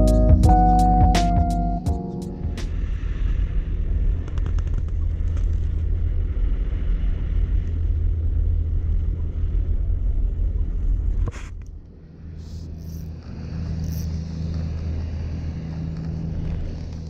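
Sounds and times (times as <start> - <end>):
loud low rumble: 0.0 - 4.4.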